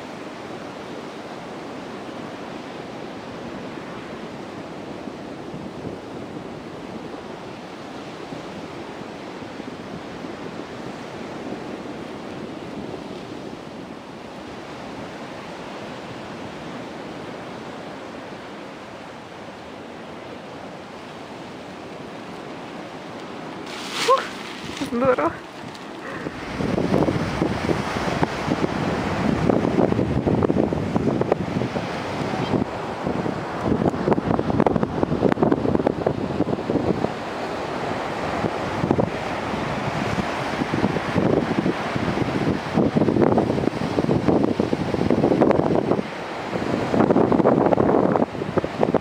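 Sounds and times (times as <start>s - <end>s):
wind buffeting microphone: 1.4s - 49.0s
surf breaking: 23.2s - 30.1s
wind rushing: 23.5s - 36.9s.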